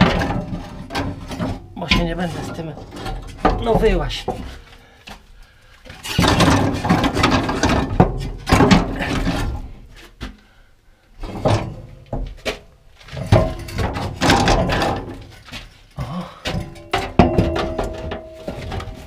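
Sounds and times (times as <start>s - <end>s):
hands scraping exhaust parts: 5.8s - 10.4s, 11.2s - 19.0s.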